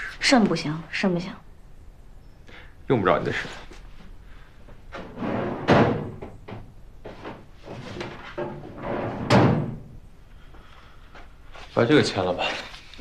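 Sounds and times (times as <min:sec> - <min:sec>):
cabinet knocks and sliding: 0:04.9 - 0:09.9.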